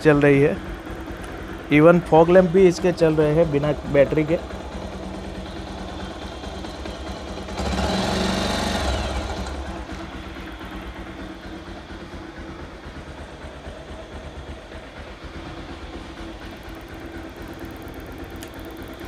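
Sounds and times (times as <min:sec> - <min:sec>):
motorcycle engine idling: 0:00.0 - 0:19.0
loud noise: 0:05.7 - 0:11.4.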